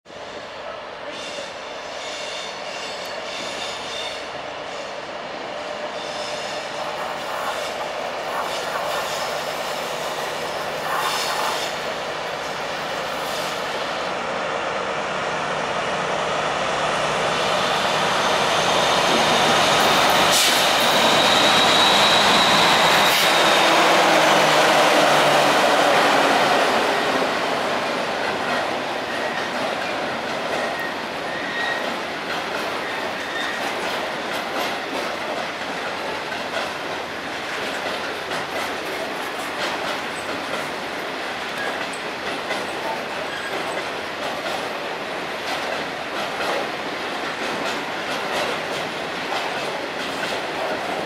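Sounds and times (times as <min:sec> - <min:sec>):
diesel locomotive passing: 0:00.1 - 0:51.0
high wheel squeal: 0:17.7 - 0:24.3, 0:30.6 - 0:32.0, 0:32.8 - 0:33.7.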